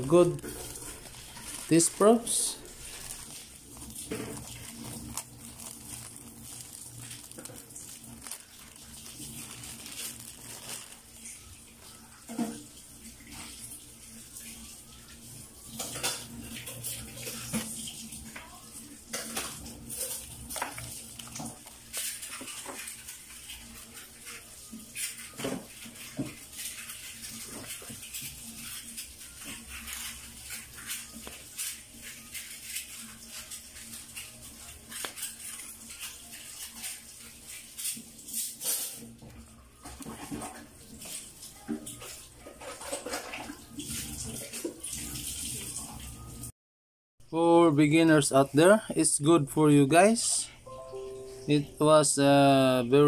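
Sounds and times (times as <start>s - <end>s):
plastic bag crinkling: 0.0s - 13.4s, 15.8s - 39.2s.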